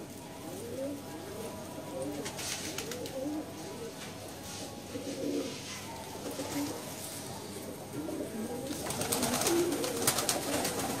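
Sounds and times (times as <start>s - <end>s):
pigeons cooing: 4.8s - 6.8s, 7.7s - 11.0s.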